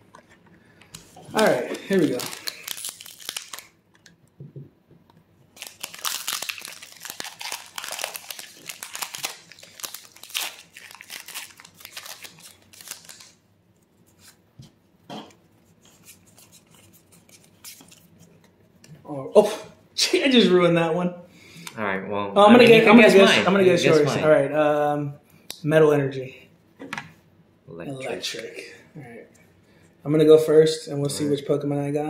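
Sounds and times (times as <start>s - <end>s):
foil wrapper crinkling: 1.4s - 4.0s, 5.5s - 13.4s
cards rustling and clicking: 5.6s - 13.4s, 15.8s - 18.2s.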